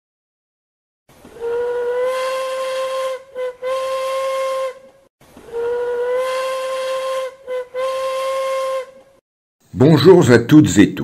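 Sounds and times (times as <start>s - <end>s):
steam locomotive whistle: 1.4s - 4.8s, 5.6s - 9.0s.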